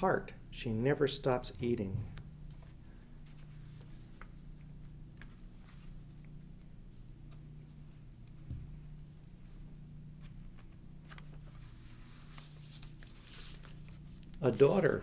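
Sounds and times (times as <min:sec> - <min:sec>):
low room hum: 0:00.0 - 0:15.0
book pages flicking: 0:10.2 - 0:14.7.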